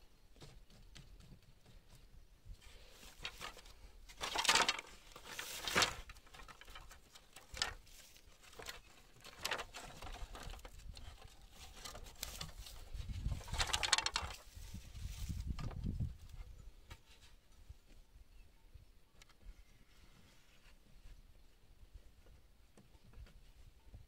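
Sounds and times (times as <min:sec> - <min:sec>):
bamboo strips rustling: 0:02.6 - 0:17.3.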